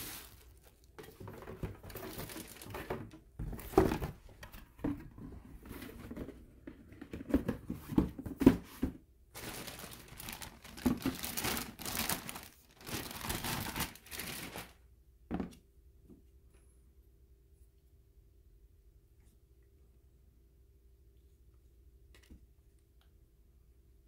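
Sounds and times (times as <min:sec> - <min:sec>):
plastic wrap crinkling: 0:00.0 - 0:03.1, 0:09.4 - 0:14.8.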